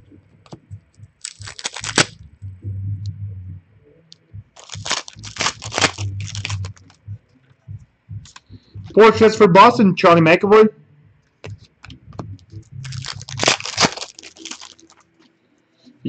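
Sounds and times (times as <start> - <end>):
foil wrapper tearing and crinkling: 1.2 - 2.1, 4.6 - 6.9, 12.8 - 15.0.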